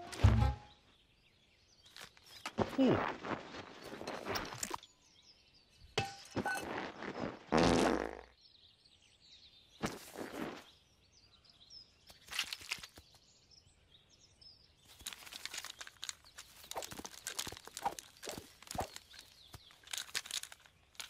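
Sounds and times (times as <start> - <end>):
faint birdsong: 0.0 - 21.0.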